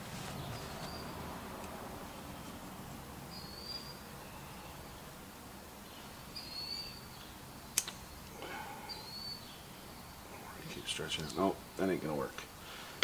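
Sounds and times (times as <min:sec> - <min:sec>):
faint background hiss: 0:00.0 - 0:13.0
bird chirping: 0:00.3 - 0:01.3, 0:02.1 - 0:05.1, 0:05.8 - 0:12.2
sharp click: 0:07.7 - 0:08.0.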